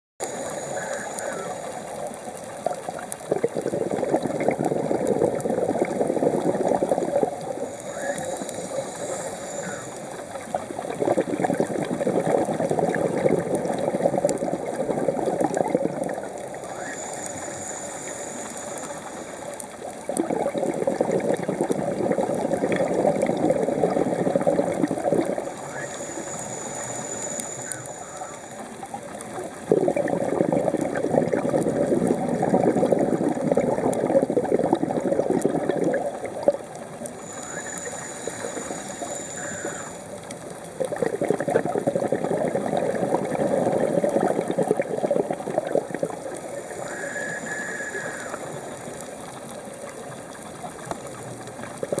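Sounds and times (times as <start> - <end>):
exhaled bubbles underwater: 0.2 - 52.0
regulator inhalation whistle: 46.8 - 48.5.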